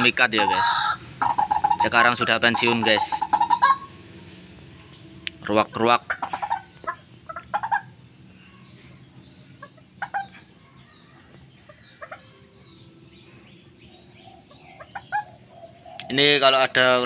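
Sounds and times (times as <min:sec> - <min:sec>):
bird giving short calls: 0:00.0 - 0:03.9.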